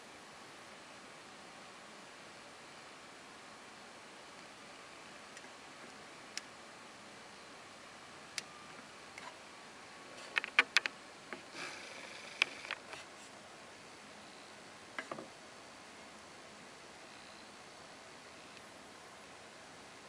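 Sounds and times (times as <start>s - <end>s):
low hiss: 0.0s - 20.0s.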